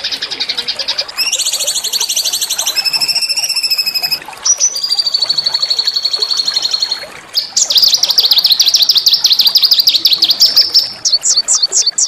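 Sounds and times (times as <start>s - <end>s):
songbird trilling song: 0.0s - 12.0s.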